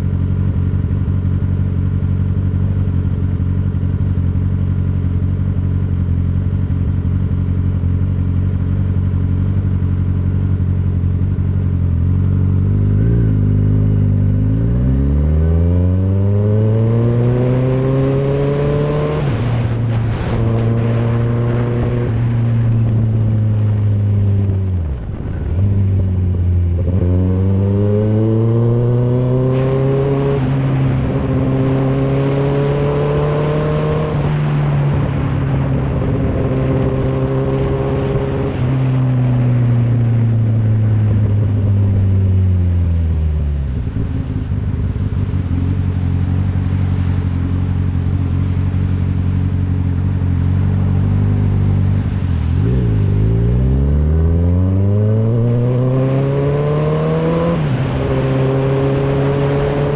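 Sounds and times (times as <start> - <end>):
motorcycle engine accelerating: 0.0 - 59.9
road and wind noise: 0.0 - 59.9.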